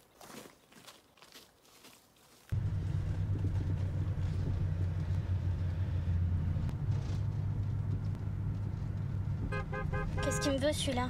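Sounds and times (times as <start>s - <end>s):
car engine rumble: 2.5s - 11.0s
road noise inside car: 2.5s - 11.0s.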